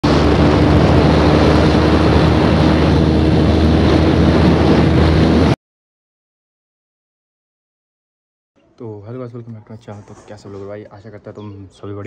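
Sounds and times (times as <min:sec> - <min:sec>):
motorcycle engine at high speed: 0:00.0 - 0:05.6
wind rush over microphone: 0:00.0 - 0:05.6.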